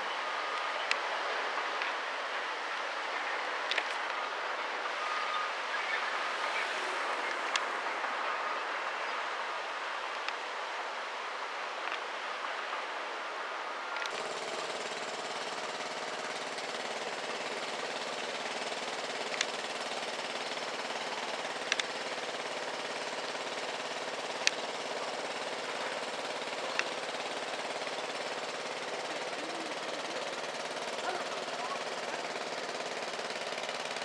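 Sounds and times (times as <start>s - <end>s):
machinery rattle: 14.0s - 34.0s.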